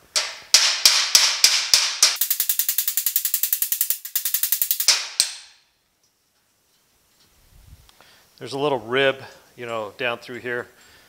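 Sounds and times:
harder hammer blows: 0.0 - 5.5
hammer tapping sheet metal: 0.0 - 5.6.

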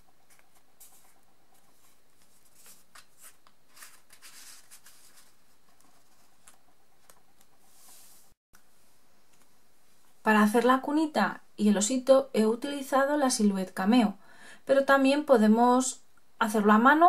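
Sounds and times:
cardstock rustling: 0.2 - 8.1.

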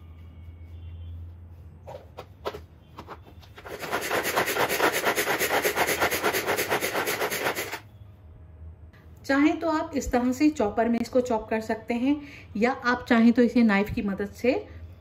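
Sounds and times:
food chopper blades whirring: 3.7 - 7.8.

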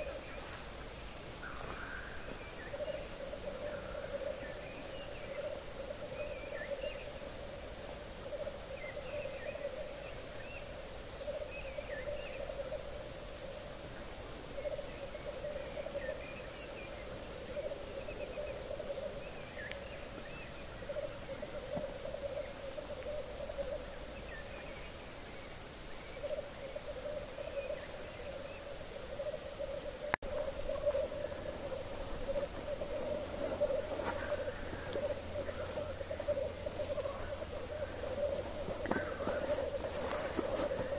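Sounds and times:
grouse bubbling cooing song: 1.6 - 13.6, 14.4 - 24.8, 26.1 - 40.9
short high bird calls: 30.4 - 40.9.

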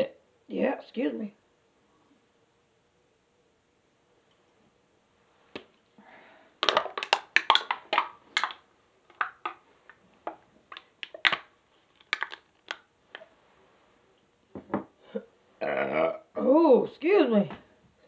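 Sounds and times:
drink can being crushed: 6.6 - 9.6, 10.3 - 12.9.

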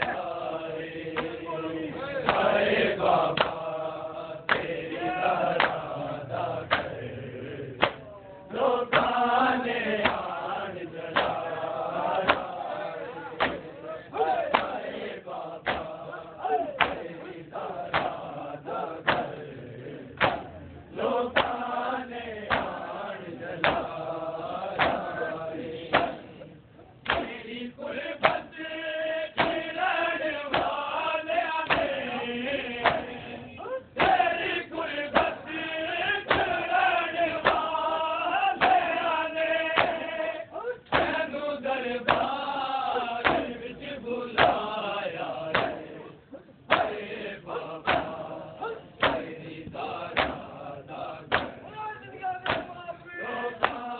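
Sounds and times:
crowd of men chanting: 0.0 - 53.9
hands slapping chests: 1.1 - 1.4, 2.2 - 2.6, 3.3 - 3.7, 4.5 - 4.8, 5.5 - 5.9, 6.6 - 7.0, 7.8 - 8.1, 8.9 - 9.2, 10.0 - 10.3, 11.1 - 11.5, 12.1 - 12.6, 13.4 - 14.9, 15.6 - 16.0, 16.7 - 18.4, 19.0 - 19.4, 20.2 - 20.6, 21.3 - 21.7, 22.5 - 22.8, 23.6 - 24.0, 24.7 - 25.2, 25.9 - 26.2, 27.0 - 27.4, 29.4 - 29.7, 30.5 - 30.8, 31.6 - 32.0, 32.8 - 33.2, 36.2 - 36.6, 37.4 - 37.8, 38.6 - 39.0, 39.7 - 40.0, 40.8 - 41.2, 42.0 - 42.4, 43.2 - 43.6, 44.3 - 44.7, 45.5 - 45.9, 46.7 - 47.0, 47.8 - 48.3, 49.0 - 50.5, 51.2 - 51.6, 52.4 - 52.8, 53.6 - 53.9.

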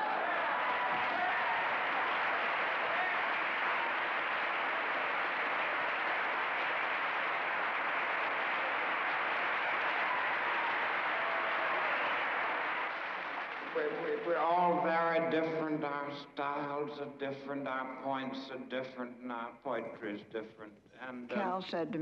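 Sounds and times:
audience applauding: 0.0 - 14.7.

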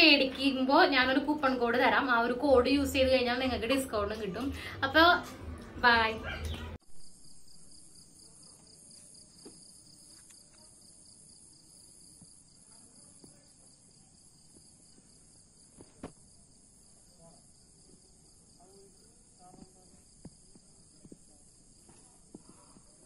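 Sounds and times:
crickets trilling: 6.8 - 23.0.

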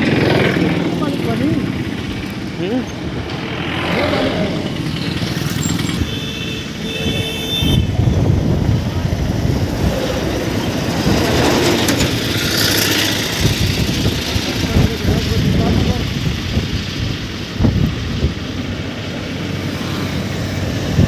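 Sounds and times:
vehicle engine and road rumble: 0.0 - 21.0
high steady horn tone: 5.8 - 8.2.

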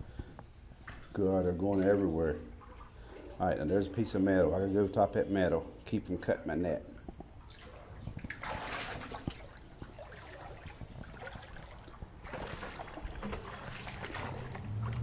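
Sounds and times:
creek water splashing: 7.4 - 15.0.

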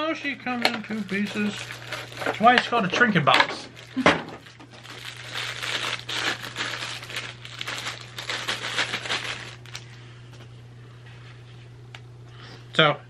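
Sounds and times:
plastic packaging crinkling: 0.5 - 10.0.

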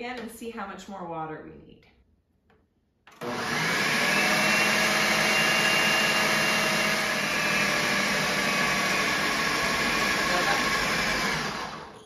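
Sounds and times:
blender motor whining: 3.1 - 12.0.

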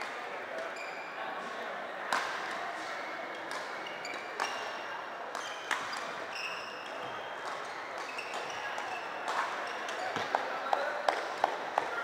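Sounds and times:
murmur of voices: 0.0 - 12.0
shoes squeaking on floor: 0.7 - 1.2, 3.7 - 4.8, 5.4 - 10.3.

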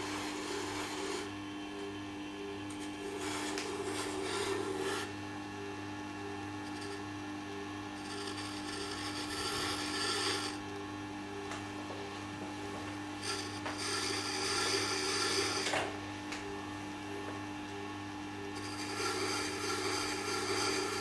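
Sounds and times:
knife rubbing on spinning wheel: 0.0 - 1.4, 2.7 - 5.2, 6.6 - 7.2, 7.9 - 10.7, 13.2 - 15.8, 18.5 - 21.0
sharpening machine humming: 0.0 - 21.0.

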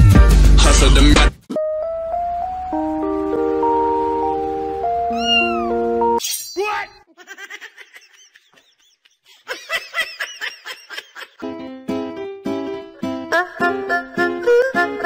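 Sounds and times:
music: 0.0 - 6.2, 11.4 - 15.0
cat meowing: 5.0 - 5.9.

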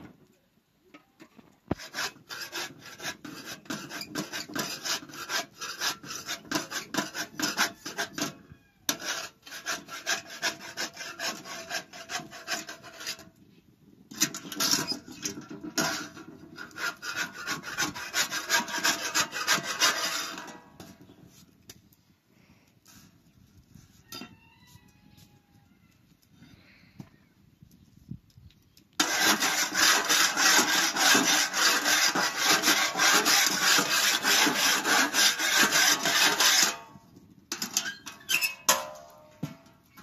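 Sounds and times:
back-and-forth scraping strokes: 1.7 - 13.4, 14.2 - 21.7, 29.0 - 37.0.

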